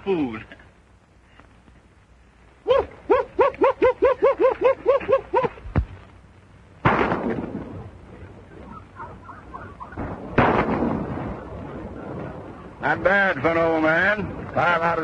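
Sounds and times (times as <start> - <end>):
short high yelps: 2.6 - 5.6.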